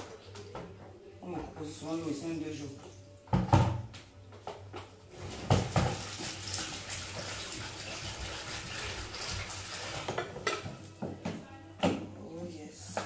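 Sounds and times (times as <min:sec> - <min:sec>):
water running into a sink: 0:05.2 - 0:10.8.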